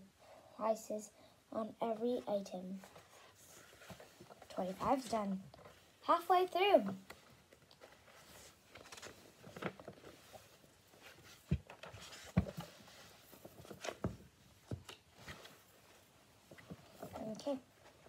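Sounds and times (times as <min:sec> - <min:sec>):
book pages turning: 0:06.8 - 0:15.7.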